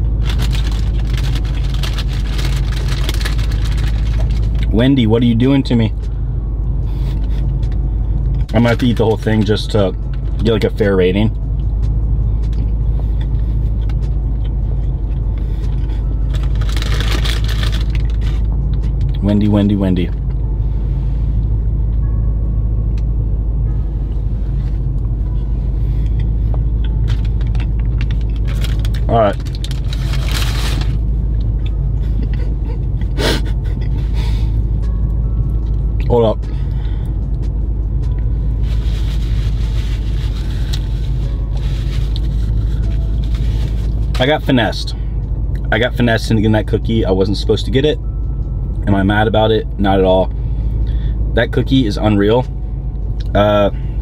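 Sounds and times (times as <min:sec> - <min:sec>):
car idling: 0:00.0 - 0:54.0
paper bag crinkling: 0:00.2 - 0:04.6, 0:16.2 - 0:18.5, 0:27.0 - 0:31.0, 0:38.6 - 0:44.2.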